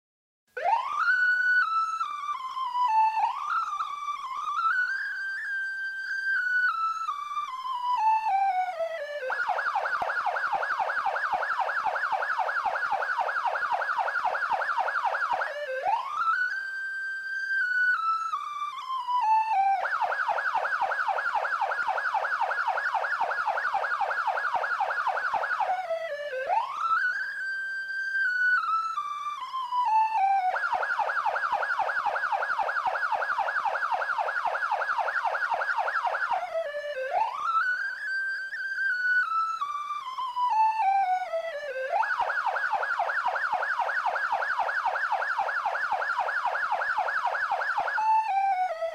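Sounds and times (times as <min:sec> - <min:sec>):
autotuned police siren: 0:00.6 - 0:48.9.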